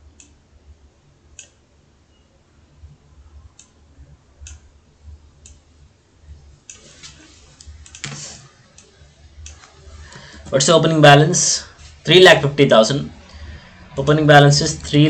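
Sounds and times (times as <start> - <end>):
computer mouse clicks: 1.4 - 1.6, 4.4 - 4.6, 6.7 - 9.8.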